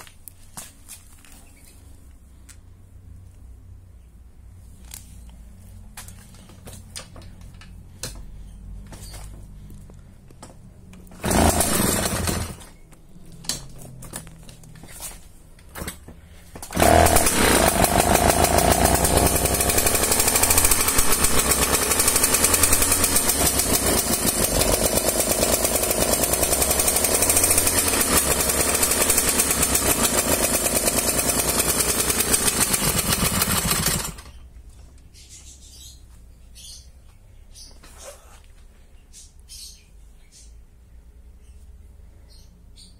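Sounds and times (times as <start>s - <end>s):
moped engine starting and rattling: 10.4s - 34.5s.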